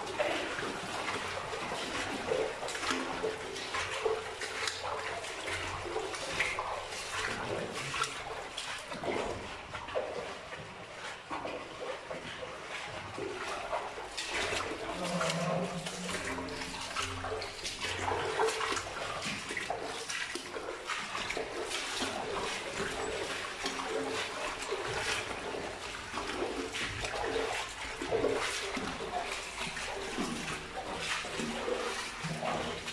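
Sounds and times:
footsteps splashing through water: 0:00.0 - 0:32.9.

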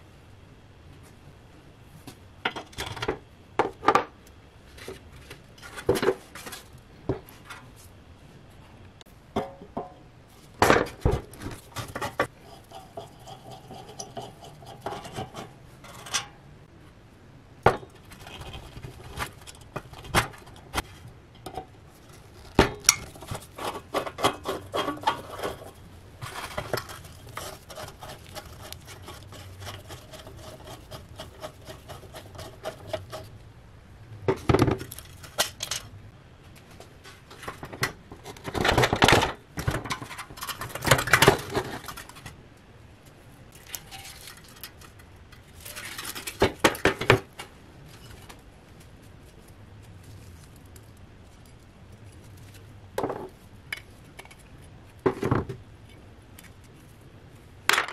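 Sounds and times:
steel tool scraping rust: 0:11.5 - 0:16.4, 0:20.7 - 0:33.4.

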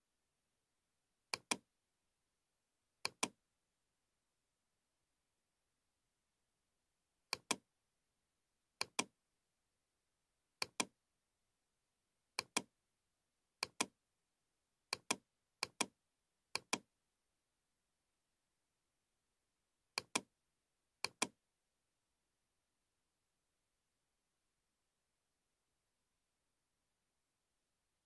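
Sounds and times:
computer mouse button clicks: 0:01.3 - 0:01.6, 0:03.0 - 0:03.4, 0:07.3 - 0:07.6, 0:08.8 - 0:09.1, 0:10.6 - 0:10.9, 0:12.4 - 0:12.7, 0:14.9 - 0:15.9, 0:16.6 - 0:16.8, 0:20.0 - 0:20.3, 0:21.0 - 0:21.4.

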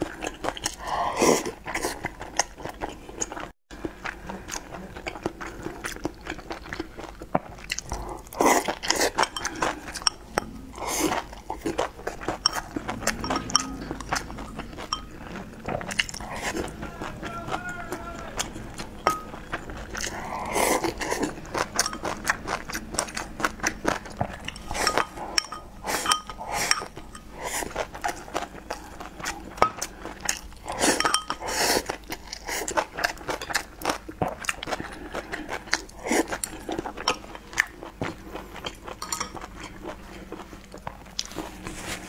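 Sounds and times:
person chewing: 0:00.0 - 0:42.0
slurping from a bowl: 0:00.2 - 0:02.2, 0:07.6 - 0:16.8, 0:18.4 - 0:33.5, 0:34.7 - 0:37.2.

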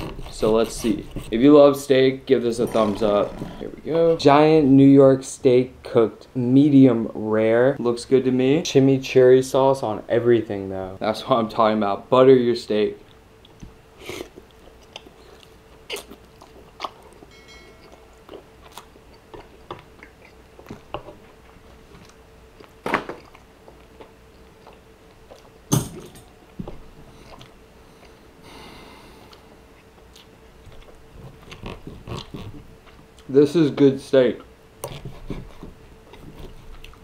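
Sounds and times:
close chewing with mouth clicks: 0:13.0 - 0:25.7, 0:26.5 - 0:28.2, 0:29.3 - 0:33.3, 0:34.8 - 0:37.0.

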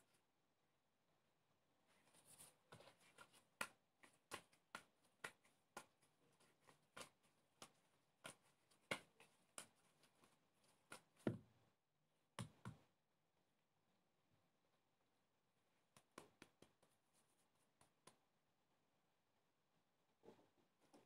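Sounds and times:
dough slapping and squelching: 0:02.3 - 0:11.5.

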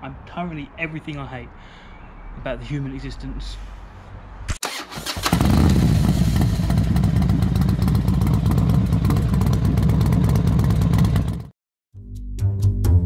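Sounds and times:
motorcycle engine running: 0:05.3 - 0:11.5.

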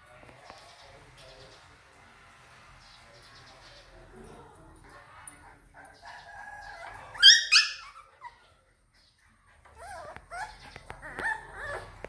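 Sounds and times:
puppy whining: 0:05.4 - 0:08.7, 0:09.5 - 0:12.0
puppies yelping: 0:05.5 - 0:08.5, 0:09.6 - 0:12.0
puppies whimpering and yipping: 0:05.7 - 0:08.7, 0:09.5 - 0:12.0.

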